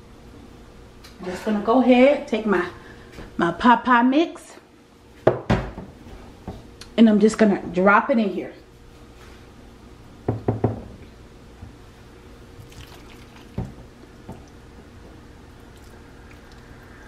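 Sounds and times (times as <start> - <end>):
soft wet filling sounds: 12.6 - 17.0.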